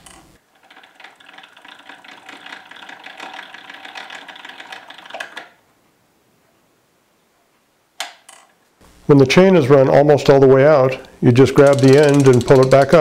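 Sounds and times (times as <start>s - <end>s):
fly fan spinning: 0.0s - 5.6s, 11.2s - 13.0s
gear train clattering ticks: 11.5s - 13.0s.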